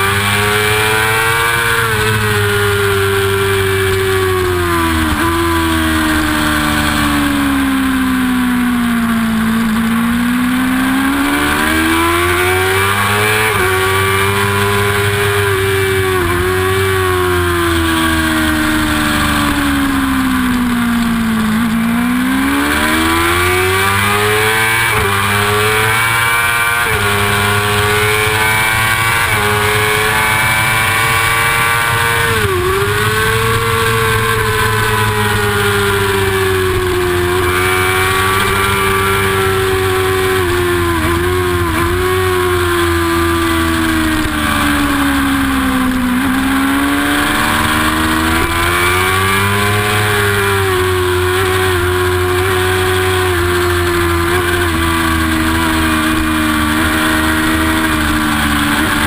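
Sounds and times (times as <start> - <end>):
motorcycle engine at high revs: 0.0 - 59.0.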